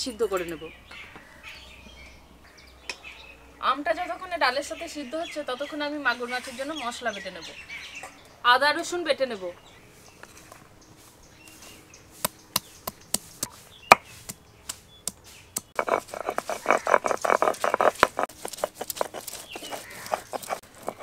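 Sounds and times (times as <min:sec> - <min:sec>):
stone grinding strokes: 0:15.6 - 0:21.0.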